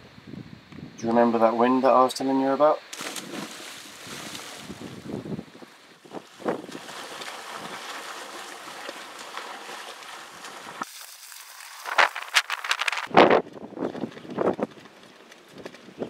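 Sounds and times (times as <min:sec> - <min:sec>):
choppy sea water: 0:03.0 - 0:16.0
wind buffeting microphone: 0:03.2 - 0:07.9, 0:12.5 - 0:16.0.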